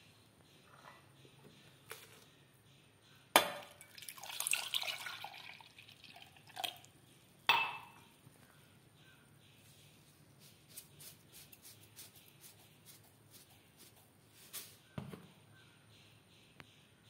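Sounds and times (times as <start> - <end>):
milk pouring and splashing: 3.8 - 6.9.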